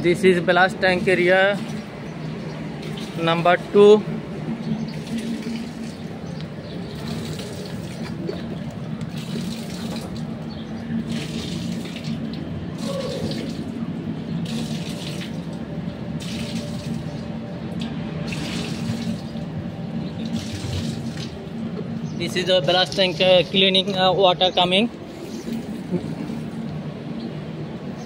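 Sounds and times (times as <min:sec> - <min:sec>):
steady low hum: 0:00.0 - 0:28.0
water rushing and splashing: 0:04.9 - 0:13.8, 0:18.2 - 0:21.6.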